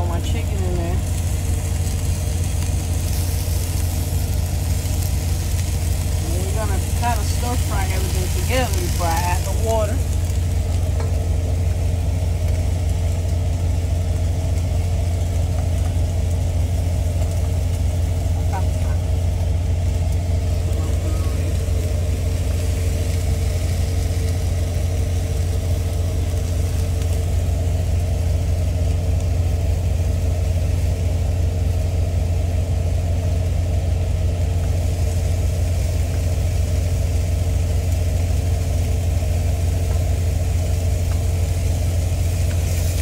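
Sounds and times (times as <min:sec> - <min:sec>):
diesel engine idling: 0:00.0 - 0:43.0.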